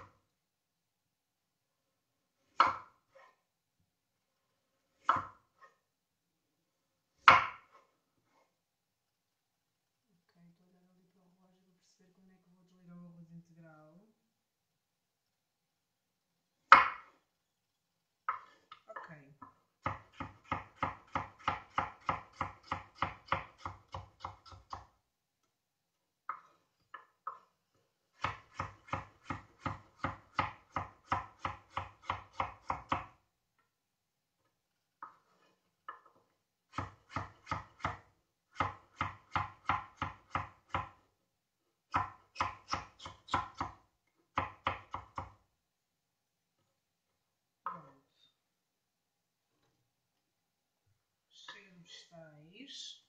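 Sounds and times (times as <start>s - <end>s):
knife chopping on wooden board: 2.4s - 3.4s, 4.9s - 5.8s, 7.2s - 7.9s, 16.7s - 17.2s, 18.2s - 18.7s, 19.4s - 24.9s, 28.2s - 33.2s, 36.7s - 41.0s, 41.9s - 45.4s.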